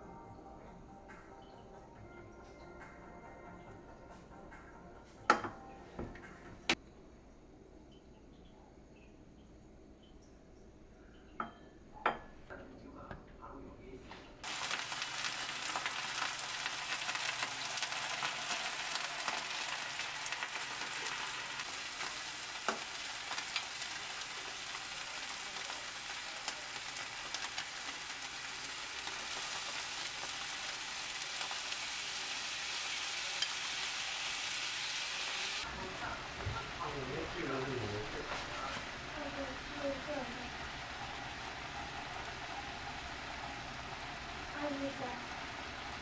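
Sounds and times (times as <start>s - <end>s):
fish frying in oil: 14.4s - 46.0s.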